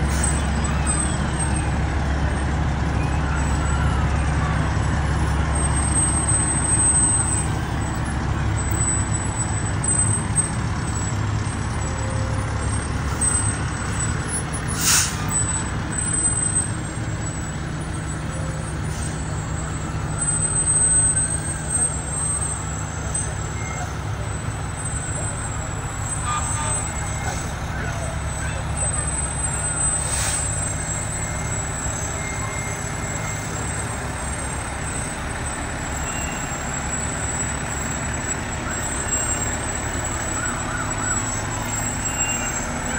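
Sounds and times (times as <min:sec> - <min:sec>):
diesel trucks passing: 0:00.0 - 0:42.9
air brake hiss: 0:14.7 - 0:15.3, 0:30.0 - 0:30.6.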